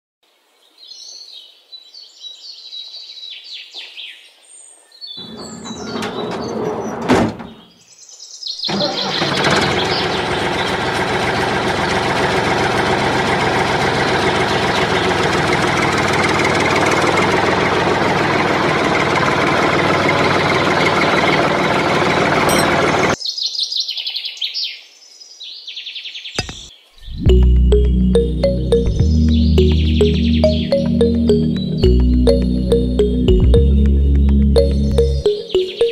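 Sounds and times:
birds chirping: 0:26.1 - 0:35.9.

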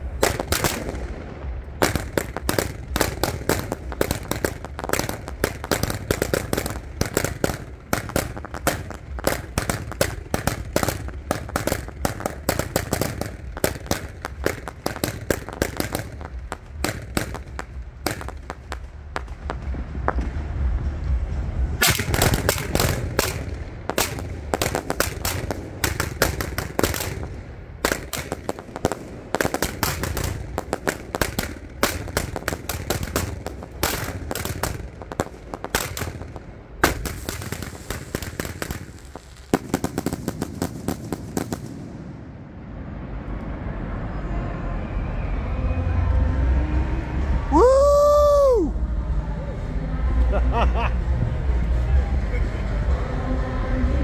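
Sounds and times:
low rumble: 0:00.0 - 0:25.9
fireworks firing in volleys: 0:00.0 - 0:42.4, 0:47.5 - 0:48.7.

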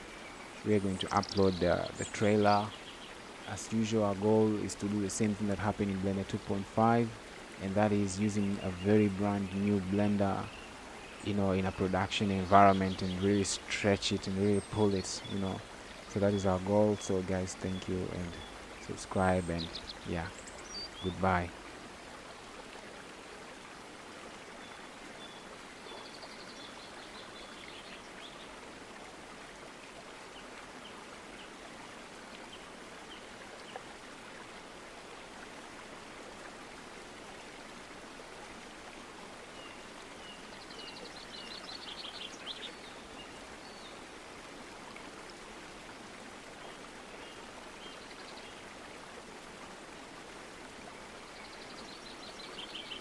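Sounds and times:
steady rushing hiss: 0:00.0 - 0:22.5.

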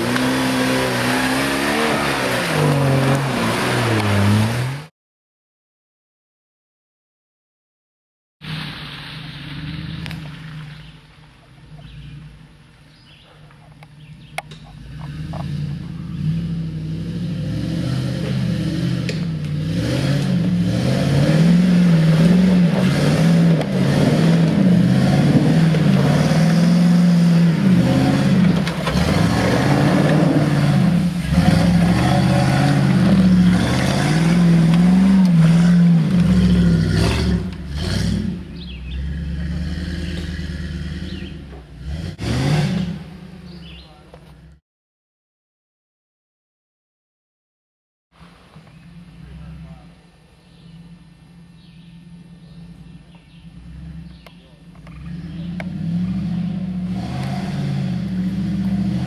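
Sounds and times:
engine revving hard: 0:00.0 - 0:04.9, 0:14.8 - 0:43.8, 0:55.0 - 0:59.0.

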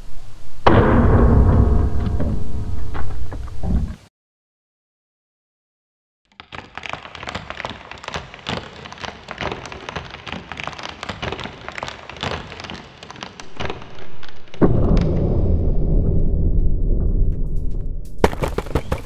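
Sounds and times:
deep rumbling boom: 0:00.0 - 0:04.0, 0:13.5 - 0:19.0
wooden pins cracking and snapping: 0:06.3 - 0:15.1.

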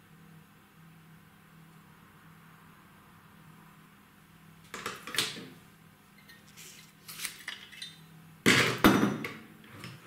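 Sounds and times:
objects knocking on a workbench: 0:08.5 - 0:09.4.

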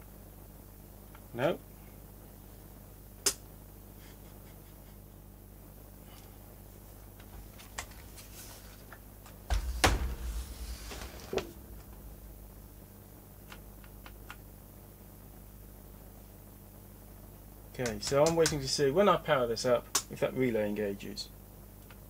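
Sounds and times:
faint steady low hum: 0:00.0 - 0:22.0
heavy bumps and clatter: 0:09.5 - 0:12.9.

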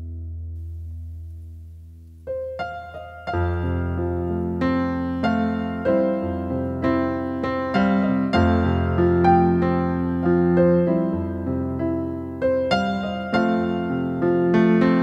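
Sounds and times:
low bass: 0:00.0 - 0:02.3
piano chords: 0:00.0 - 0:15.0.

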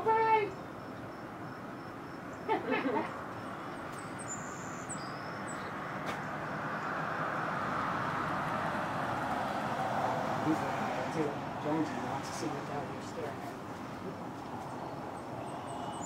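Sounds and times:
birds chirping and whistling: 0:03.5 - 0:05.8, 0:14.6 - 0:16.0.

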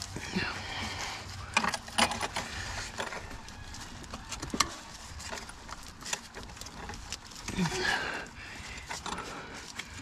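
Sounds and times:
gloved hands handling hoses: 0:00.0 - 0:10.0.

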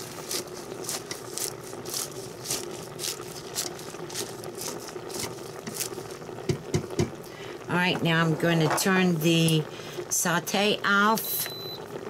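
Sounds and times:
leaves crunching against a metal pot: 0:00.0 - 0:06.8
faint steady hum: 0:00.0 - 0:12.0.

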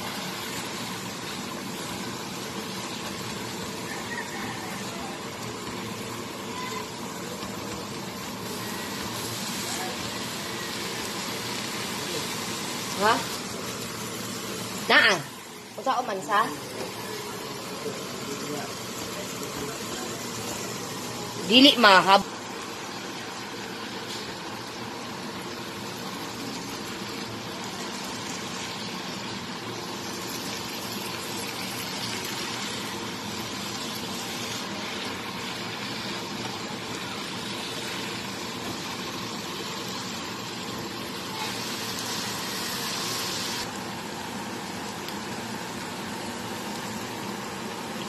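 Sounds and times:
food sizzling in oil: 0:00.0 - 0:48.0.

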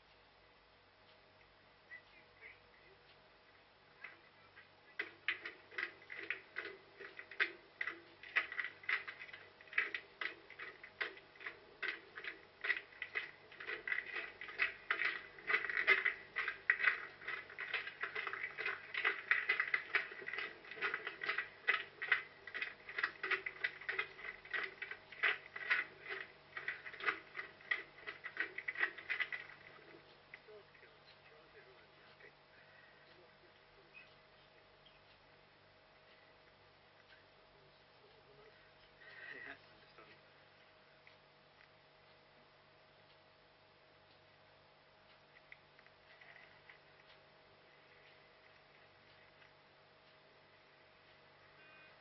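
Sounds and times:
running footsteps: 0:04.9 - 0:30.8.

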